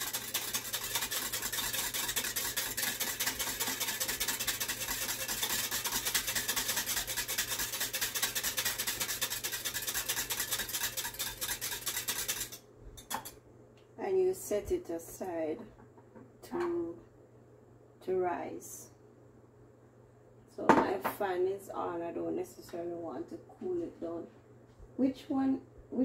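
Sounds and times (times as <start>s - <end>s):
wire whisk scraping glass: 0.0s - 13.3s.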